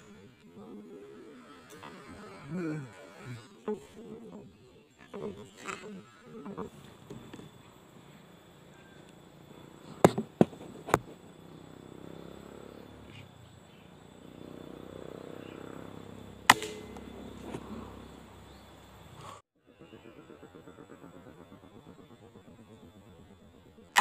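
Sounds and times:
air rifle cracks: 0:16.5 - 0:17.1.

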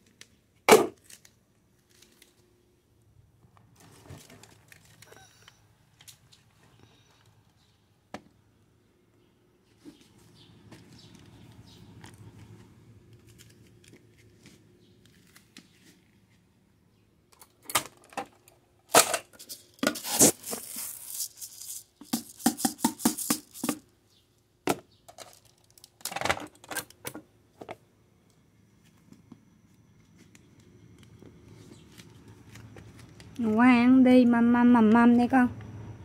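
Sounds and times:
rice rattling into plastic bowl: 0:19.0 - 0:23.8.

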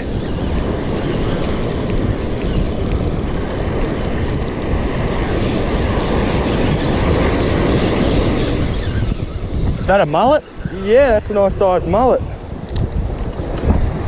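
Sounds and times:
fishing reel winding: 0:00.0 - 0:09.7
surf rushing: 0:03.2 - 0:12.2.

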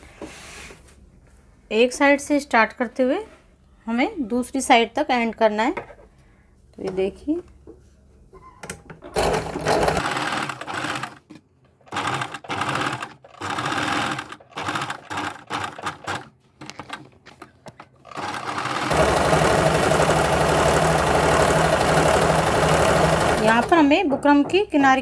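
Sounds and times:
sewing machine stitching: 0:09.2 - 0:11.2, 0:11.9 - 0:17.0, 0:18.0 - 0:23.9.

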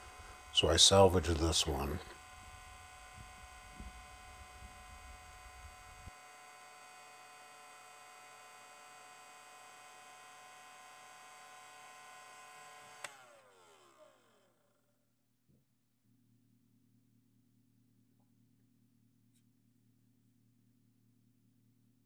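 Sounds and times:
heat gun fan whine: 0:00.0 - 0:14.8.

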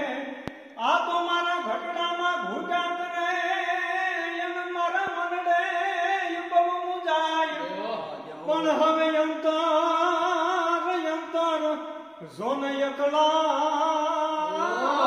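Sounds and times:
person singing slow chant: 0:14.4 - 0:15.0.

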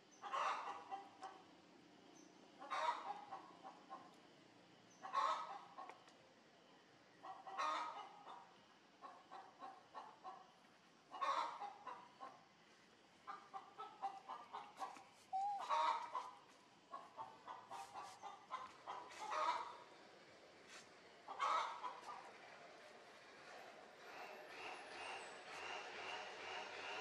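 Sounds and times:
chicken calls: 0:00.2 - 0:01.3, 0:02.6 - 0:04.1, 0:05.0 - 0:06.0, 0:11.1 - 0:12.4, 0:13.2 - 0:20.0, 0:20.7 - 0:22.5
chickens clucking: 0:00.2 - 0:01.4, 0:02.6 - 0:04.2, 0:05.0 - 0:06.1, 0:07.2 - 0:10.5, 0:11.1 - 0:12.5, 0:13.2 - 0:20.0, 0:20.7 - 0:22.9.

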